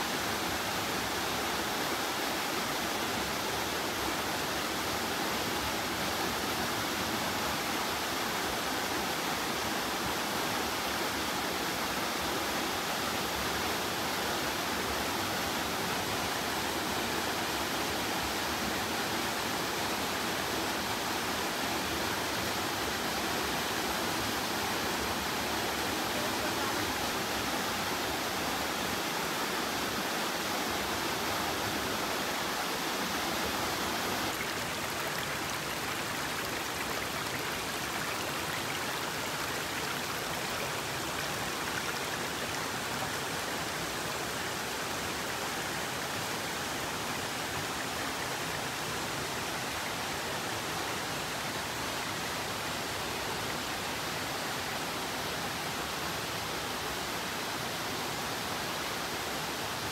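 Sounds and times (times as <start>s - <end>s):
waterfall rushing: 13.2s - 54.7s.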